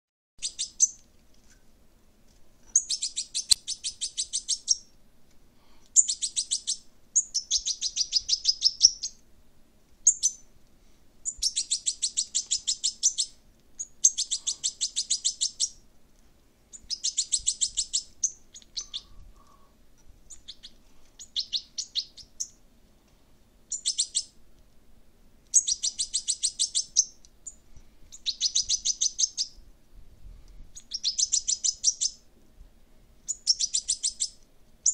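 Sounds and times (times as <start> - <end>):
fledgling bird chirping: 0.4 - 1.0, 2.7 - 4.9, 6.0 - 9.2, 10.0 - 10.5, 11.2 - 15.8, 16.7 - 19.7, 20.3 - 22.6, 23.7 - 24.4, 25.5 - 29.6, 30.8 - 32.2, 33.3 - 34.9.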